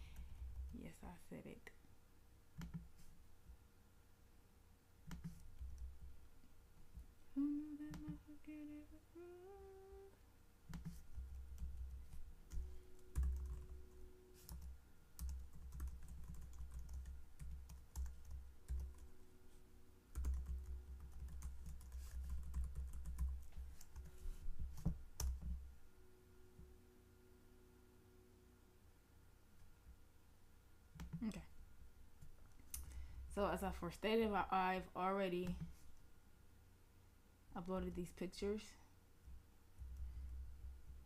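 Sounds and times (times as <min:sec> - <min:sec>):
keyboard typing: 0:05.1 - 0:06.0, 0:10.7 - 0:19.1, 0:20.1 - 0:25.6
person humming: 0:07.3 - 0:10.2.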